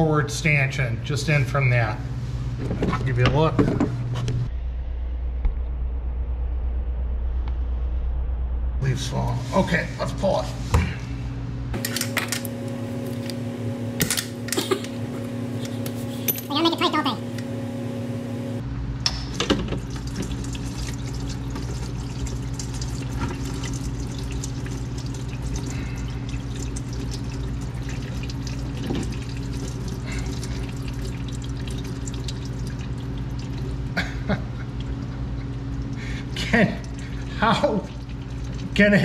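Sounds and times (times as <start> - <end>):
steady low hum: 0.0 - 39.0
oil pouring and splattering: 19.3 - 39.0.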